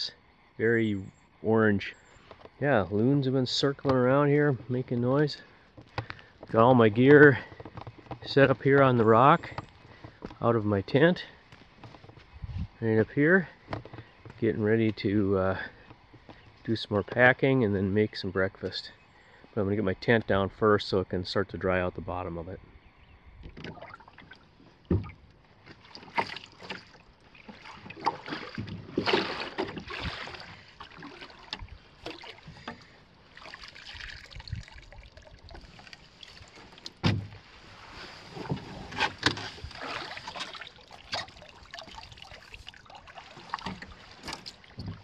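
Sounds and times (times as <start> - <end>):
paddle pulling through water: 5.4 - 10.4, 23.4 - 45.0
water splashes and drips: 23.4 - 37.2, 39.2 - 45.0.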